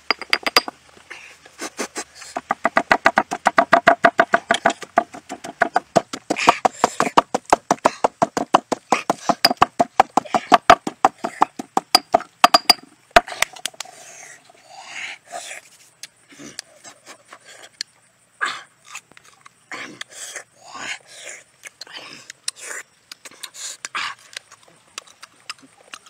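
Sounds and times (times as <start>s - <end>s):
pestle pounding in stone mortar: 2.4s - 13.4s.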